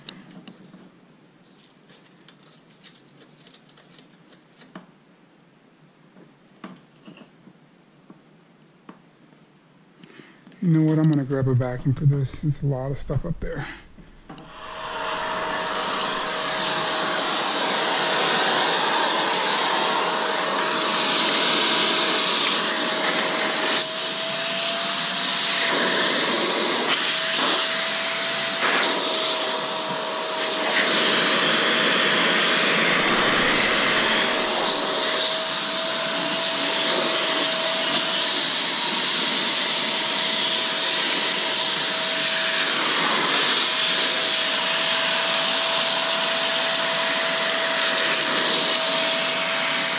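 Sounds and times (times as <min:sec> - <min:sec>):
vacuum cleaner running: 0:10.8 - 0:49.9.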